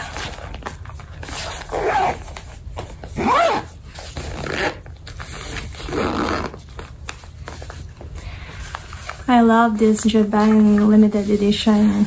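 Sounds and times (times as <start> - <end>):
zipper being pulled shut: 1.3 - 2.3, 3.2 - 4.8, 5.8 - 6.6.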